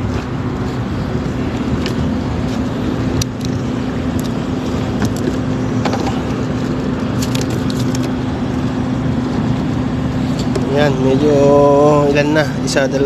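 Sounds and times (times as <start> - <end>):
motor humming: 0.0 - 13.0
handling clicks and knocks: 4.9 - 6.4.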